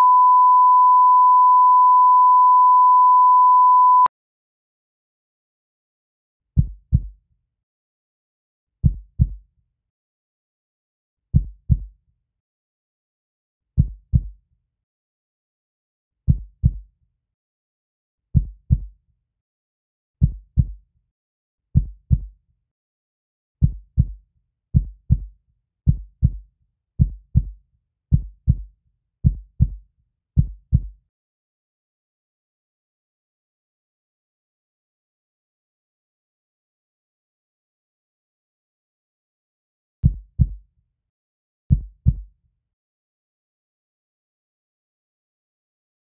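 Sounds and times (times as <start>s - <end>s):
heartbeat thumps: 8.8s - 9.4s, 24.8s - 25.3s, 27.0s - 27.5s, 40.1s - 40.6s, 41.7s - 42.3s.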